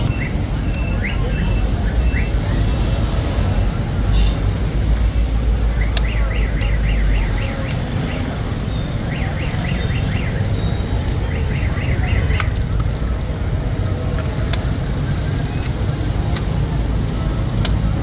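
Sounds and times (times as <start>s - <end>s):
sharp metallic clicks: 11.2s - 13.0s.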